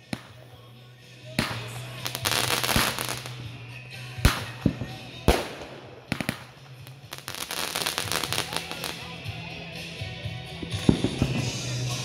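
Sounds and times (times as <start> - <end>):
fireworks crackling: 0.0 - 9.4, 10.6 - 12.0
fireworks sharp bangs: 1.3 - 3.5, 4.2 - 9.0, 10.7 - 11.7.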